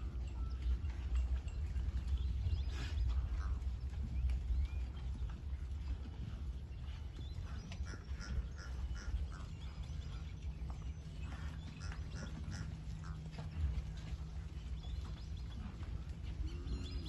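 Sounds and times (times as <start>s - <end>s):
birds chirping: 0.0s - 17.0s
steady low rumble: 0.0s - 17.0s.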